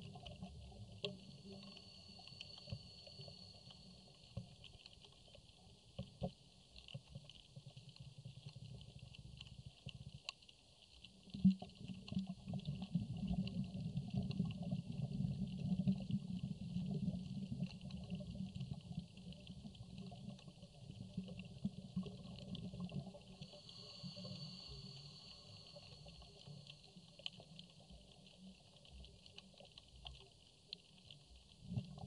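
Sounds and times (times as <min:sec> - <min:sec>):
low underwater rumbling: 0:00.0 - 0:10.2, 0:11.1 - 0:32.0
crackling clicks: 0:00.0 - 0:32.0
faint steady high tone: 0:00.8 - 0:04.6, 0:23.3 - 0:27.2.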